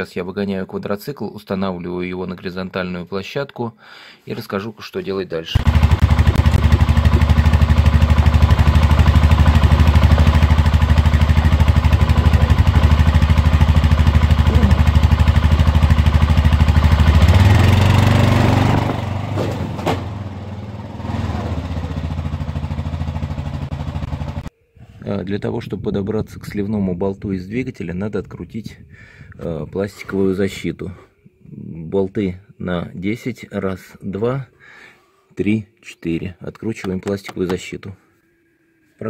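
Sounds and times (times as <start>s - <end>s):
quad engine idling and revving: 5.6s - 24.5s.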